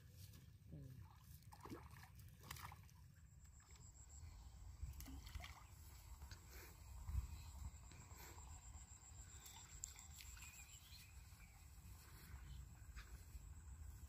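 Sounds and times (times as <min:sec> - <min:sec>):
low wind rumble: 0:05.7 - 0:09.2.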